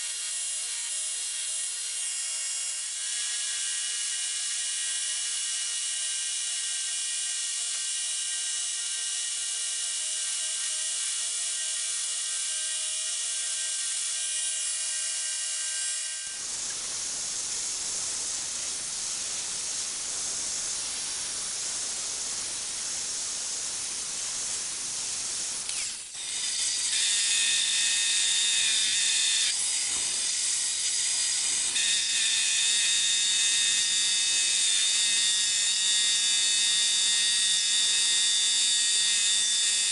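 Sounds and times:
angle grinder grinding metal: 25.4 - 39.9
band saw cutting wood: 25.6 - 39.9
belt grinder grinding steel: 25.7 - 39.9.

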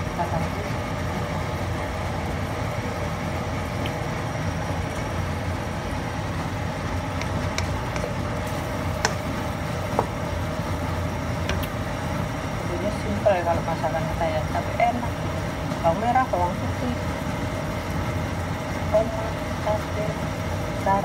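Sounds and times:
low kitchen rumble: 0.0 - 21.0
wooden spatula stirring in wok: 6.5 - 11.6
sharp taps on pan: 9.0 - 9.3.

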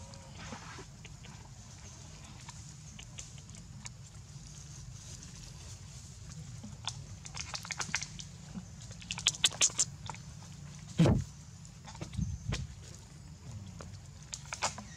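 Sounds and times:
monkeys lip-smacking and clicking: 2.4 - 4.0, 6.8 - 10.2
loud low thump: 11.0 - 11.3.

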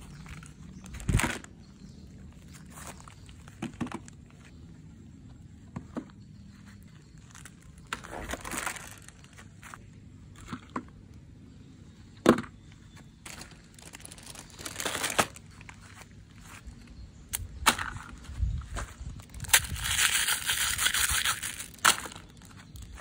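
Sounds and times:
plastic bag crinkling: 7.2 - 9.5, 13.3 - 15.7, 19.3 - 23.0.

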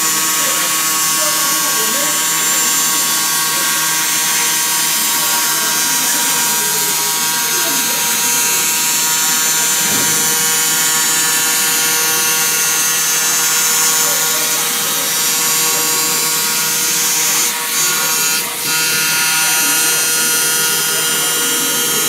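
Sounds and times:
laser cutter hissing: 0.0 - 22.0
machine hum: 4.8 - 19.2.

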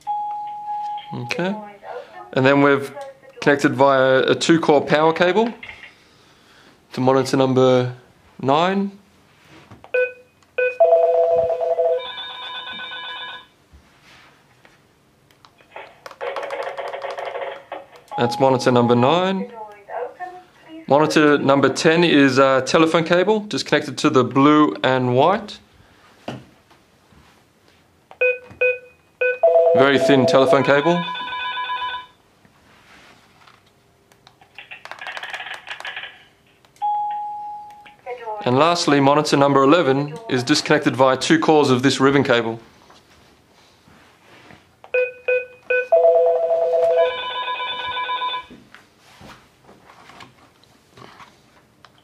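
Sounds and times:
electronic intercom call tone: 10.0 - 13.5, 28.7 - 32.2, 45.0 - 48.5
short keypad beeps: 28.2 - 29.5, 45.0 - 46.0.

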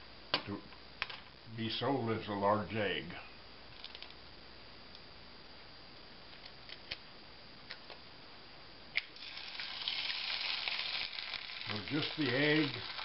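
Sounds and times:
egg sizzling in a skillet: 9.0 - 13.0
eggshell cracking: 9.0 - 13.0.

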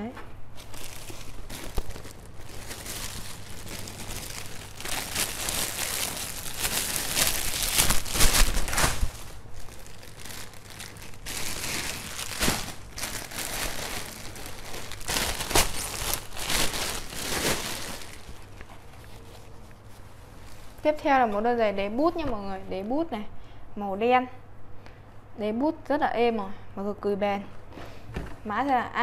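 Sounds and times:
plastic bags crinkling: 0.5 - 20.9.

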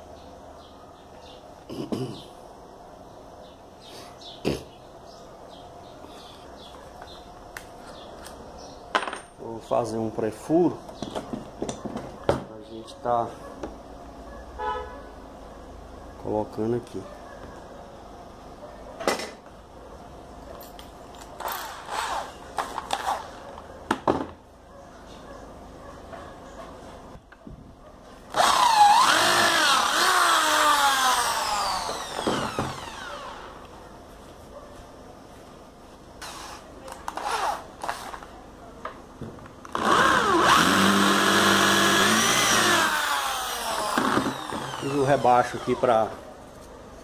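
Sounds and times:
electric drill boring into wood: 21.6 - 22.3, 28.3 - 33.5, 39.7 - 45.9
short scraping noises: 36.2 - 38.3.

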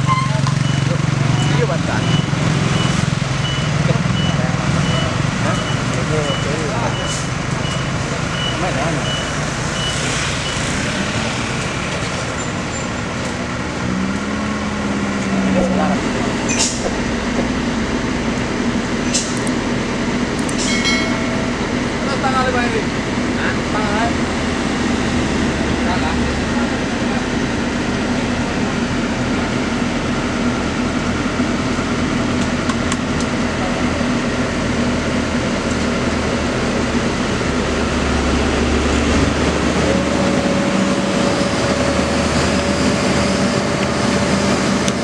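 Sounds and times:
excavator diesel engine running: 0.0 - 45.0
low hum: 13.2 - 22.4.

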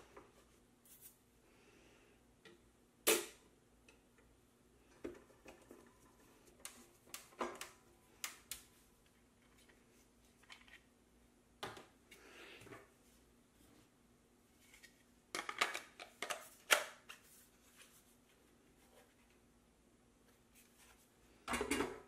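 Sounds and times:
plastic parts clicking and knocking: 15.3 - 17.0.

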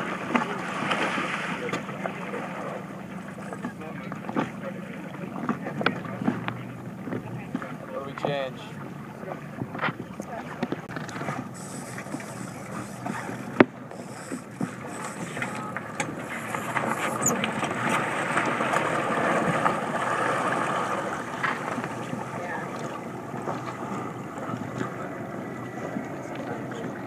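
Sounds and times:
water splashing along boat hull: 0.0 - 27.0.

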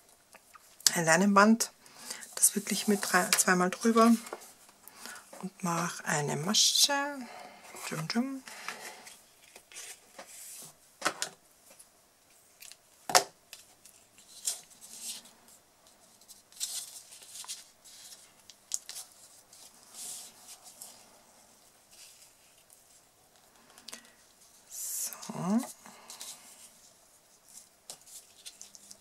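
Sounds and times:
string and card rustling: 2.2 - 4.7, 25.5 - 29.0.

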